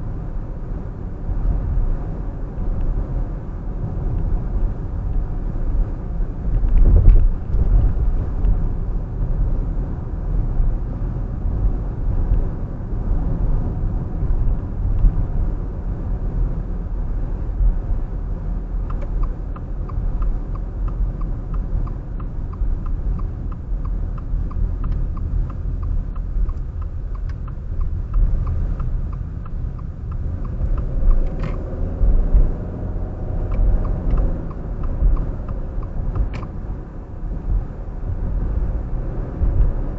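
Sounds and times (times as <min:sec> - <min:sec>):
car engine and tyres rumbling: 0:00.0 - 0:39.9
light ticking: 0:18.8 - 0:36.8.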